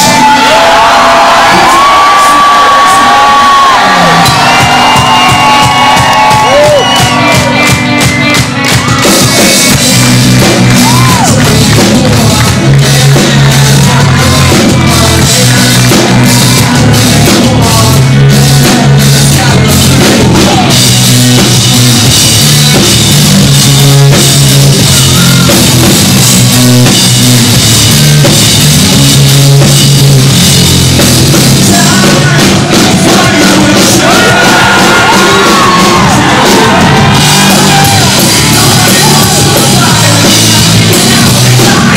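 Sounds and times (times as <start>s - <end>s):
rock band playing live: 0.0s - 41.9s
man singing: 9.2s - 21.5s, 31.3s - 41.9s.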